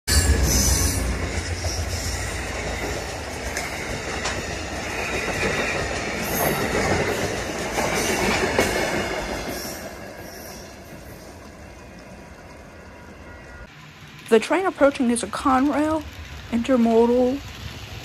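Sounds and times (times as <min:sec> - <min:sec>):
train wheels rushing on rail: 0:00.1 - 0:18.0.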